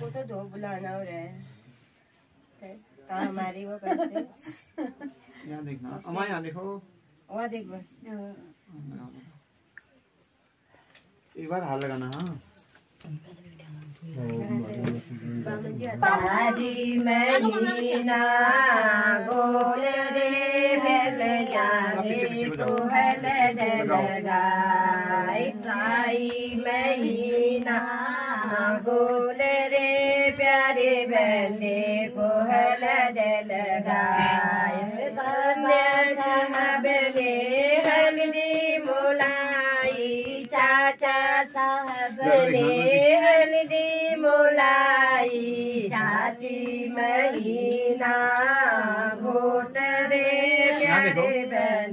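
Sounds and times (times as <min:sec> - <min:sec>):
women singing together: 0:14.1 - 0:51.9.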